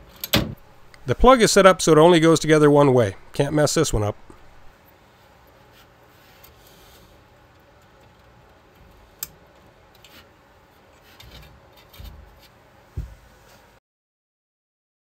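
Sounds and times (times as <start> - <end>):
rubbing and handling wiring: 5.5 - 12.6.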